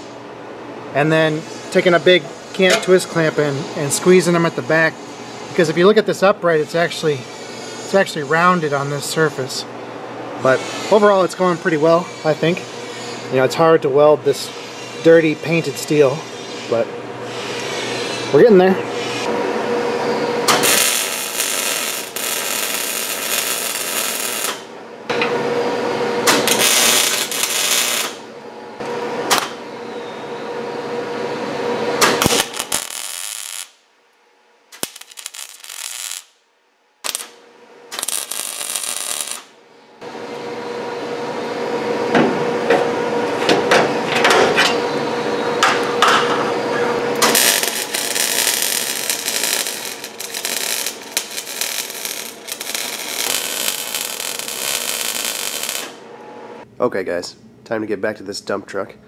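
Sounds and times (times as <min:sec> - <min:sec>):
welding arc crackling: 0:20.5 - 0:24.7, 0:26.3 - 0:28.2, 0:32.1 - 0:33.8, 0:34.7 - 0:36.4, 0:37.0 - 0:39.6, 0:47.2 - 0:56.0.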